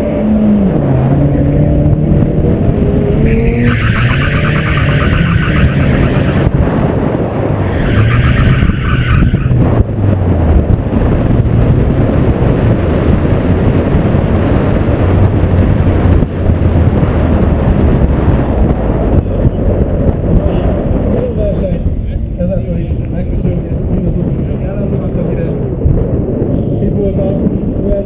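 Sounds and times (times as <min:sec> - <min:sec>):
car engine revving: 0:00.0 - 0:21.2.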